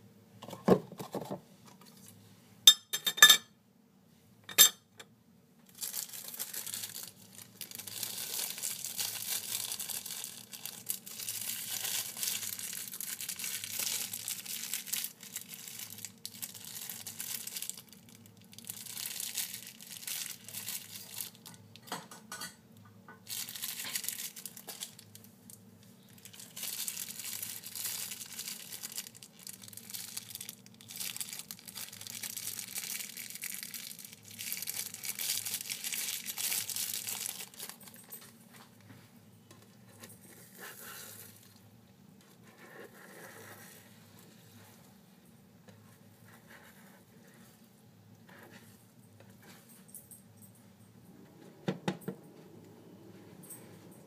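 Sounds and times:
plastic bag crinkling: 5.7 - 21.8, 23.2 - 38.3.

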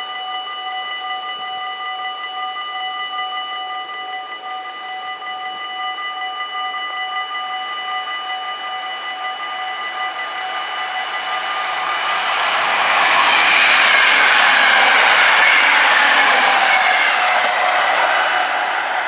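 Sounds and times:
approaching train: 8.6 - 19.0.

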